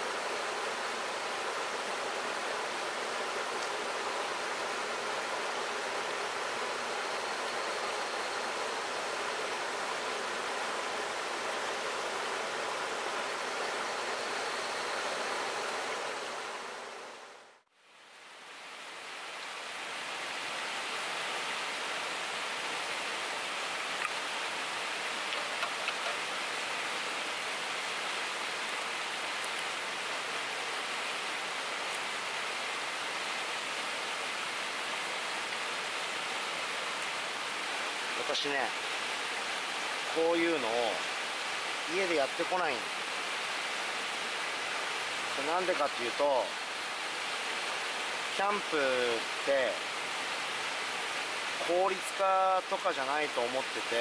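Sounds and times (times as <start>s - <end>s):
river flowing over rocks: 0.0s - 54.0s
faint ticks: 3.6s - 3.8s, 23.9s - 24.2s, 25.3s - 26.2s.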